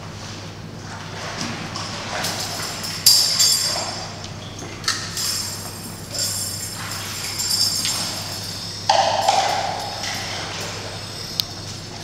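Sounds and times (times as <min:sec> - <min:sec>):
metal clinks ringing: 0:05.2 - 0:08.9.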